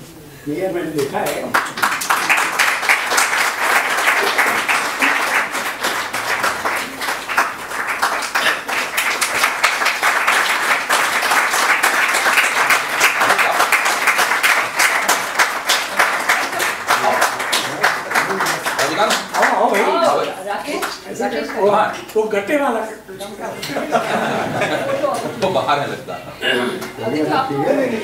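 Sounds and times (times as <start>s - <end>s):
audience applauding: 1.2s - 21.6s.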